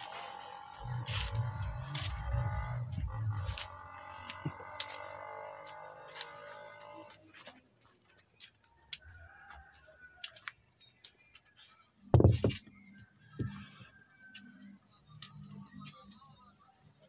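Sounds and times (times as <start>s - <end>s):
insect drone: 0.0s - 7.9s
loud knock with low thump: 12.1s - 12.6s.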